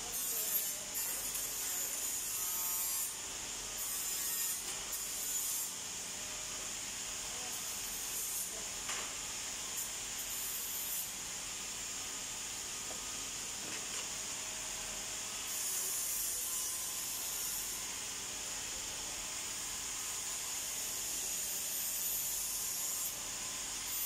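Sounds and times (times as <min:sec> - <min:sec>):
workshop background noise: 0:00.0 - 0:06.1, 0:07.0 - 0:11.2, 0:12.0 - 0:14.3, 0:15.4 - 0:17.8, 0:19.9 - 0:23.2.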